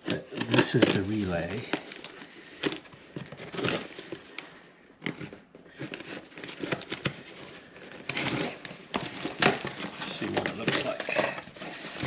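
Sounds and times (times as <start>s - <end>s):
cardboard box rustling: 0.0s - 12.0s
knife slitting packing tape: 8.0s - 12.0s.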